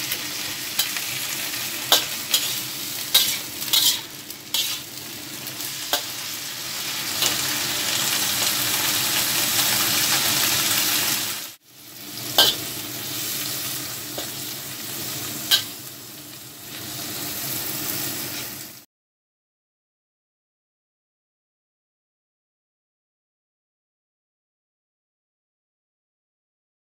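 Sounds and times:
food sizzling in a wok: 0.0 - 18.9
metal spatula clinking on wok: 1.9 - 4.0.

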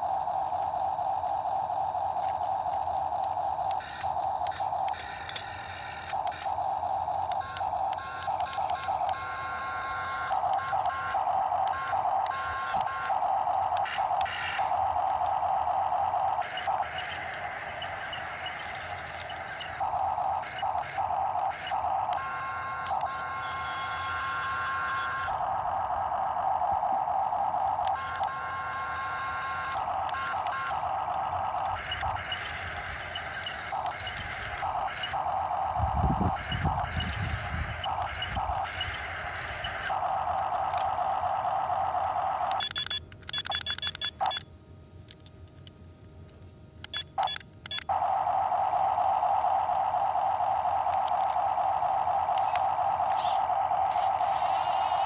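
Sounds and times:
small electric motors whirring: 0.0 - 44.4, 46.9 - 55.0.

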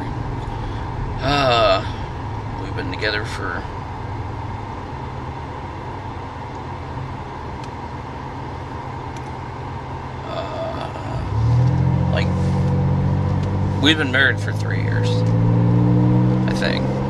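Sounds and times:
car engine and road noise: 0.0 - 17.0.

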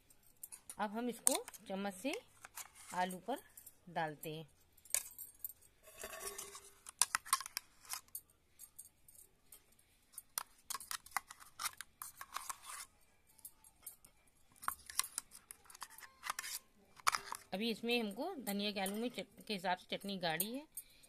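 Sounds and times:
spoon scraping and clinking bowls: 5.8 - 8.1, 10.2 - 12.9, 13.9 - 17.5.

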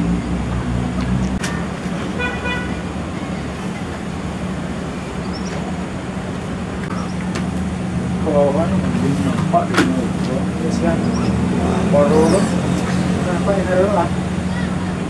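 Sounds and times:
road traffic drone: 0.0 - 15.0
vehicle horn toot: 2.1 - 2.9
faint bird chirps: 5.2 - 5.6, 6.9 - 7.2.

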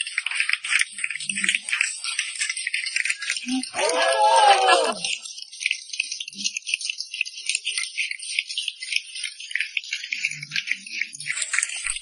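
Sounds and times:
audience applauding: 3.7 - 5.1.

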